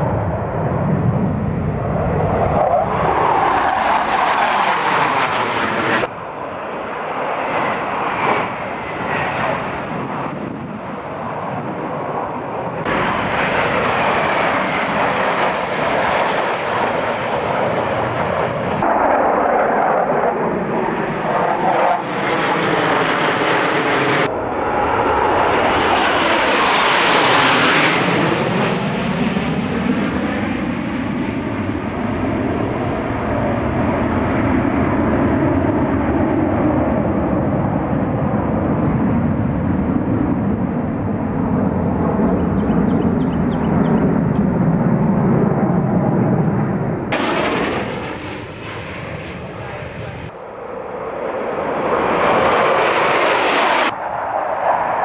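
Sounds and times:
jet engines flying past: 0.0s - 55.0s.

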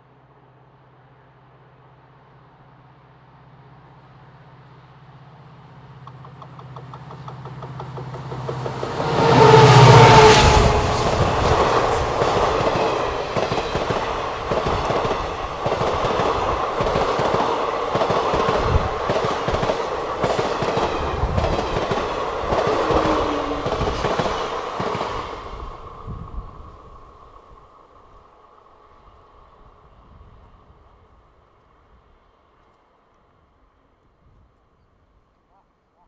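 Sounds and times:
diesel locomotive engine accelerating: 0.1s - 32.6s
train wheels clacking over rail joints: 6.0s - 25.2s.

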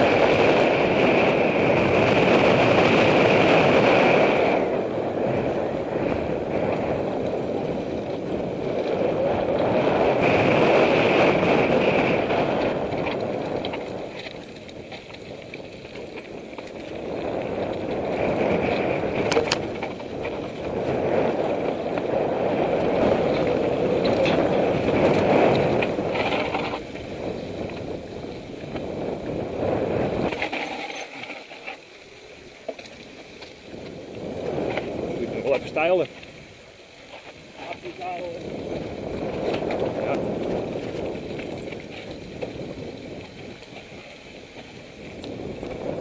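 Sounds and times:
bike clicks and rattles: 0.0s - 46.0s
bike tyres on gravel: 0.0s - 46.0s
wind rushing: 38.0s - 43.6s.

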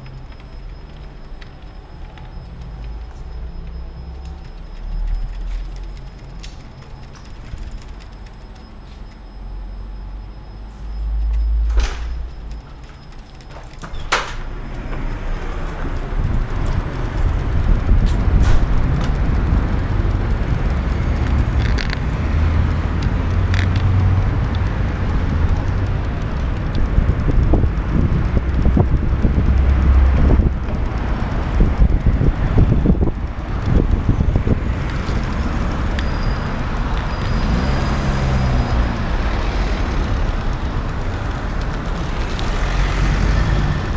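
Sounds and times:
keys jangling: 5.2s - 9.0s, 11.8s - 14.5s
wind rush and tyre noise: 13.1s - 43.9s.

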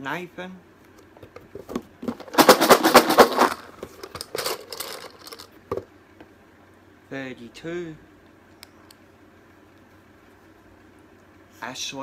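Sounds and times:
tickets rattling in a box: 1.6s - 5.5s.

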